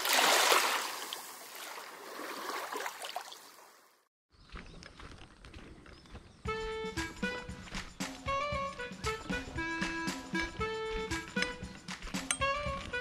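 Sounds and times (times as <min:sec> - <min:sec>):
footsteps on dirt path: 0:04.3 - 0:13.0.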